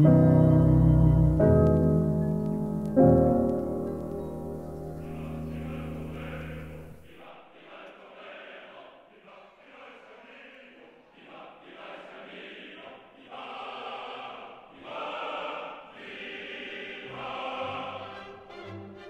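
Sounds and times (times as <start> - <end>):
wordless choral music: 0.0 - 19.0.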